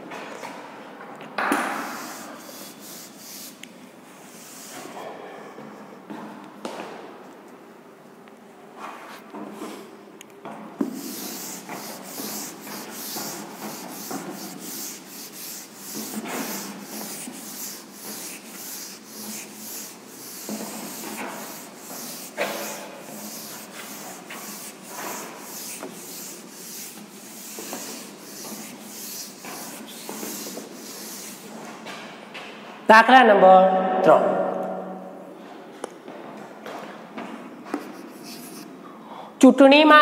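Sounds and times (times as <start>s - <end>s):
duster rubbing on chalkboard: 1.6s - 3.6s, 4.2s - 5.0s, 10.8s - 31.9s, 37.8s - 38.7s.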